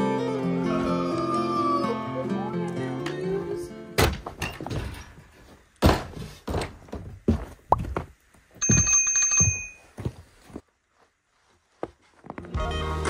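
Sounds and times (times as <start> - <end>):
boots stepping on boards: 5.8 - 10.6
notification bell ring: 8.6 - 9.8.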